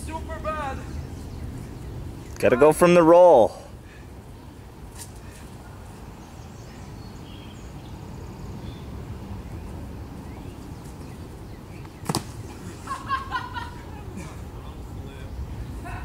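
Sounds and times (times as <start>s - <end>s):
body thudding on concrete ledge: 11.8s - 12.6s.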